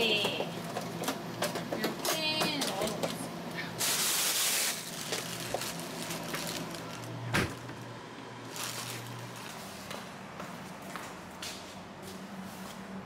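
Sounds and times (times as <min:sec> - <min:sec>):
refrigerator hum: 0:00.0 - 0:13.0
plastic containers rustling: 0:03.8 - 0:10.0.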